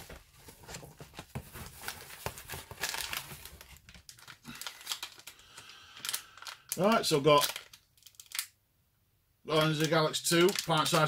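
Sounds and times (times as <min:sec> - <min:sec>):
foil bag crinkling: 0:01.7 - 0:08.4, 0:09.6 - 0:11.0.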